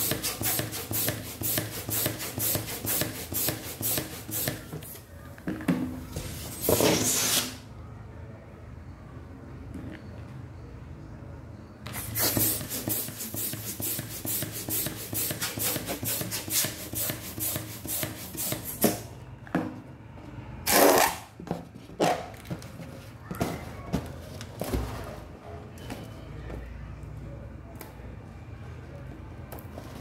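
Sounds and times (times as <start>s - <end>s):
balloon being inflated: 6.5s - 7.6s, 11.9s - 19.0s.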